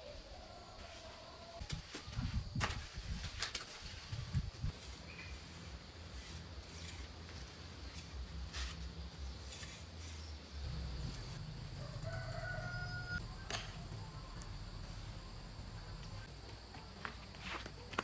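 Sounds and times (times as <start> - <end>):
scraping strokes: 0.8 - 11.4
rooster crowing: 11.6 - 13.5.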